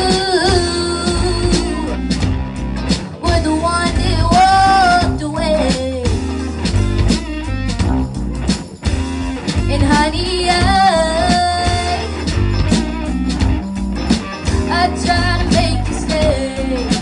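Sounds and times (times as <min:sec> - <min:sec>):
female lead vocal: 0:00.0 - 0:02.1, 0:03.1 - 0:06.5, 0:09.7 - 0:12.4, 0:14.6 - 0:17.0
bass guitar: 0:00.0 - 0:17.0
drum kit: 0:00.0 - 0:17.0
electric guitars: 0:00.0 - 0:17.0.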